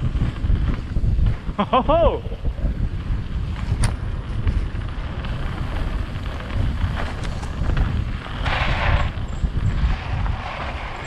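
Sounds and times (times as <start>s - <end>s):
bike rattling: 0.0s - 11.0s
wind buffeting microphone: 0.0s - 11.0s
tyre rumble on gravel: 3.5s - 11.0s.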